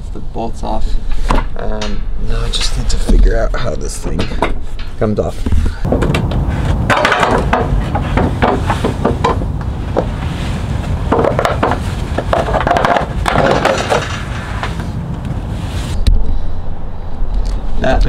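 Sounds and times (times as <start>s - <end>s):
steady low rumble: 0.0s - 18.0s
metal knocks and clanks: 4.0s - 10.2s, 10.9s - 15.0s.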